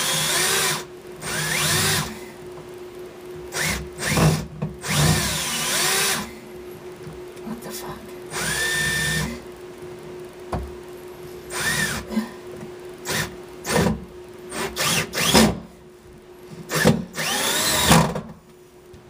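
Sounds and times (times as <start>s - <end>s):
power drill driving screws: 0.0s - 2.2s, 3.6s - 6.3s, 8.3s - 9.3s, 11.5s - 12.0s, 14.5s - 15.6s, 16.7s - 18.2s.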